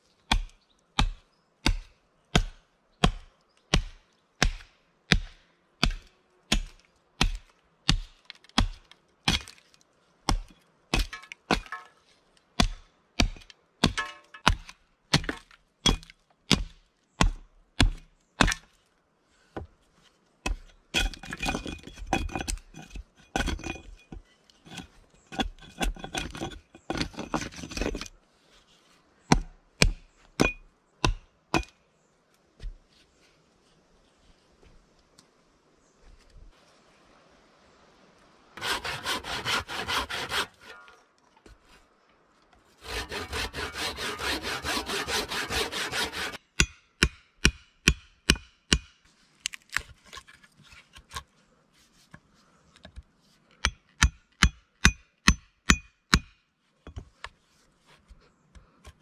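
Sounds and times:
hatchet chopping log: 0.3 - 9.6, 10.3 - 11.9, 12.6 - 18.7, 29.3 - 31.8, 42.8 - 49.0, 53.6 - 56.4.

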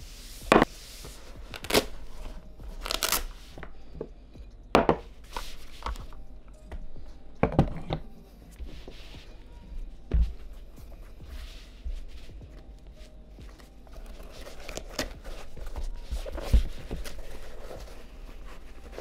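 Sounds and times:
foam wrap rustling: 1.3 - 3.4.

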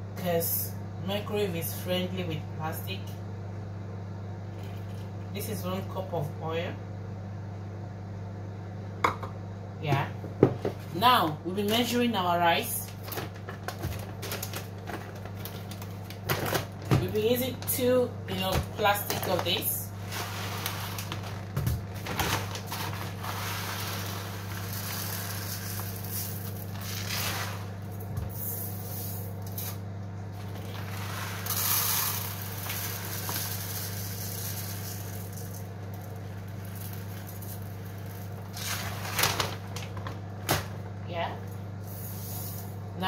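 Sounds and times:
microwave oven humming: 0.0 - 43.0
rice grains rustling: 20.0 - 21.4, 22.6 - 27.8.

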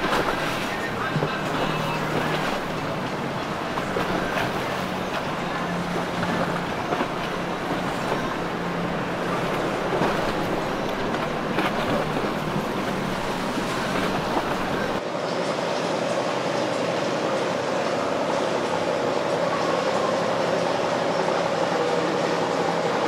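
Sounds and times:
water splashing: 0.0 - 15.0
boat engines humming: 0.0 - 23.0.

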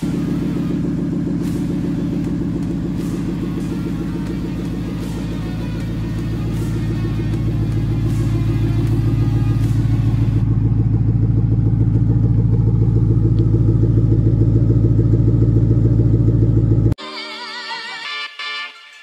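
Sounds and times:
music: 0.0 - 10.4, 17.0 - 19.0
car engine idling: 0.0 - 17.0.

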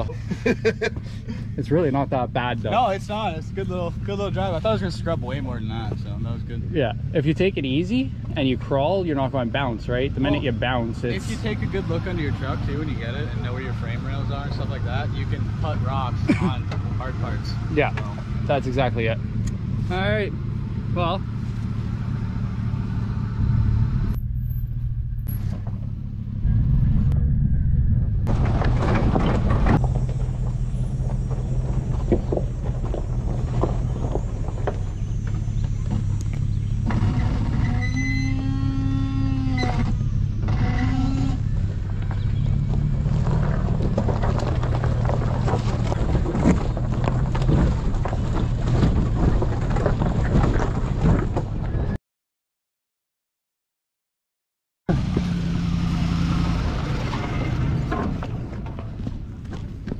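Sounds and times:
truck engine running low: 0.0 - 52.0, 54.9 - 59.9
rattling noise: 22.9 - 51.7
crackles and knocks: 24.1 - 37.8, 39.7 - 51.9, 56.9 - 59.9.

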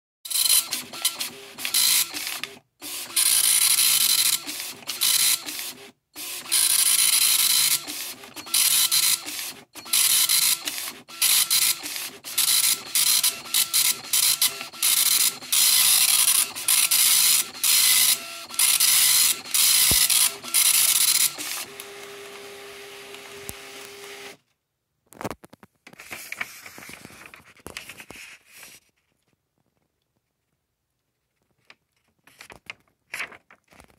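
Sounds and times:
dot matrix printer printing: 0.3 - 24.4
printer whirring hum: 0.3 - 24.4
paper rustling: 25.1 - 29.9, 31.3 - 33.9.

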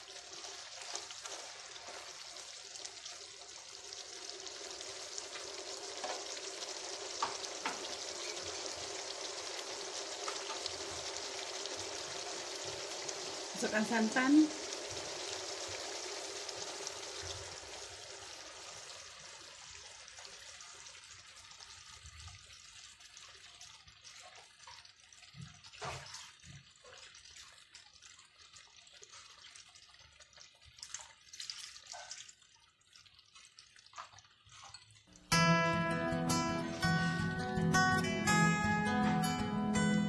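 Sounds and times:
liquid pouring into a wok: 0.0 - 13.8, 14.5 - 36.0
curry simmering with bubble pops: 0.0 - 35.4
acoustic guitar music: 35.1 - 40.0.

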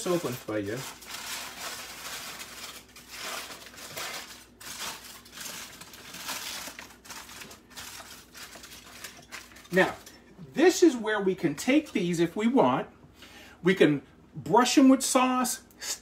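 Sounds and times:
foil tearing and crinkling: 0.0 - 10.0.

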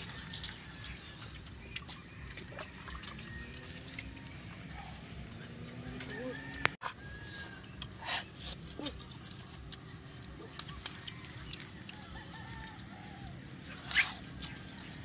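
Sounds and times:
rooster crowing: 5.8 - 7.7, 11.0 - 13.4.

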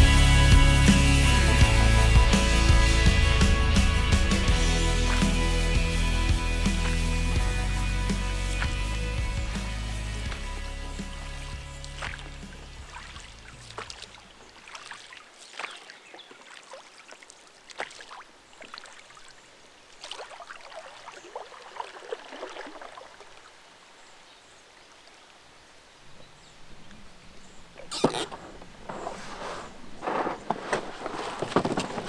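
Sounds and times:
music: 0.0 - 13.9
river water splashes and drips: 4.8 - 6.0, 8.4 - 29.0.

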